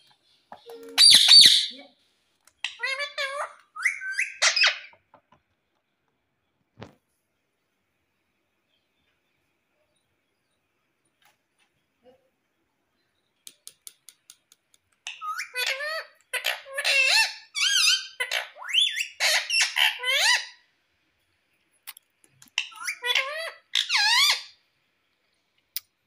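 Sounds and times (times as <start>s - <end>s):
parakeet chattering: 0.8s - 1.8s, 2.6s - 5.0s, 15.1s - 20.6s, 22.5s - 24.6s.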